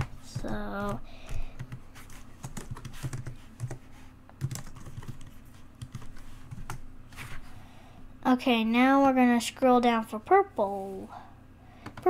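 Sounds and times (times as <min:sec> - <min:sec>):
computer keyboard typing: 0:00.0 - 0:03.8, 0:04.4 - 0:06.8.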